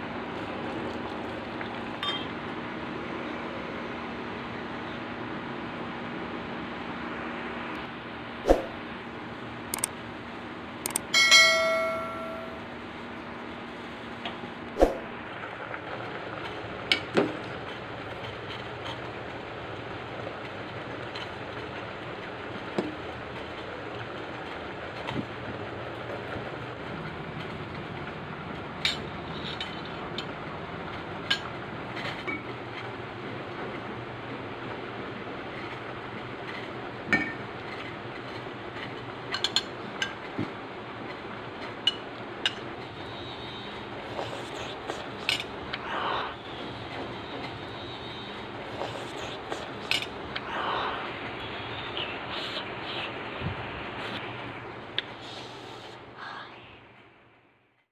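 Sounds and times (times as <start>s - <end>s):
steady background noise: 0.0s - 57.8s
spoon clinking against steel bowl: 2.0s - 2.3s, 11.2s - 12.6s
pot boiling hiss: 12.9s - 57.0s.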